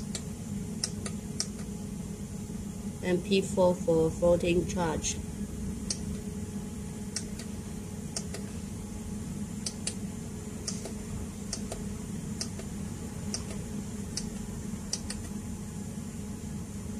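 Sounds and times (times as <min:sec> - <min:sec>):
steady low hum: 0:00.0 - 0:16.9
push buttons clicking: 0:00.8 - 0:01.7, 0:08.1 - 0:08.5, 0:10.6 - 0:11.8, 0:14.2 - 0:15.3.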